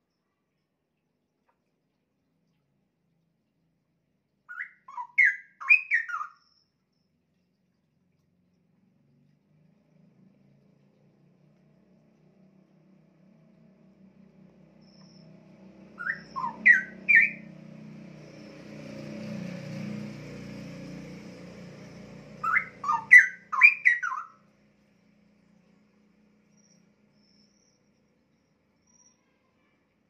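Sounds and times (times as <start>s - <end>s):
bird singing whistled notes: 4.5s - 6.8s, 14.8s - 17.5s, 22.4s - 24.4s, 26.5s - 29.5s.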